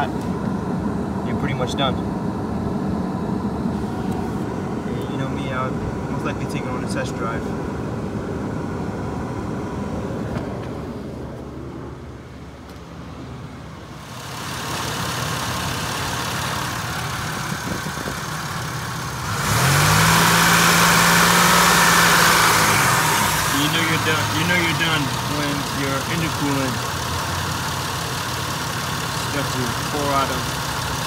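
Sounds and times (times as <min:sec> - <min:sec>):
car engine idling: 0:00.0 - 0:31.0
whir rising in pitch: 0:19.2 - 0:24.8.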